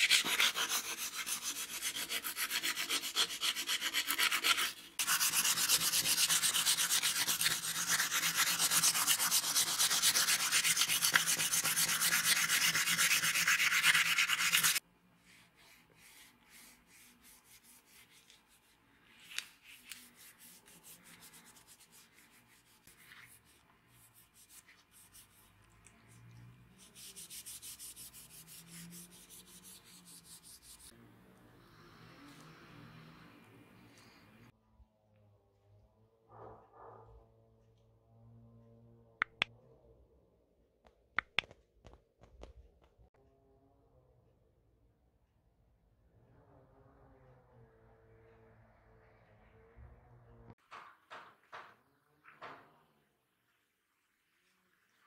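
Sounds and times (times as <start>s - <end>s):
sandpaper rubbing wood: 0.0s - 25.5s, 26.8s - 30.9s
faint handling sounds: 15.0s - 26.5s.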